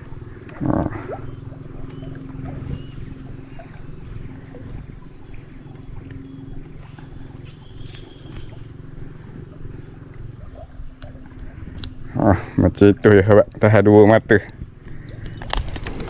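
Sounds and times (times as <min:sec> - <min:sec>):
high-pitched insect drone: 0:00.0 - 0:16.0.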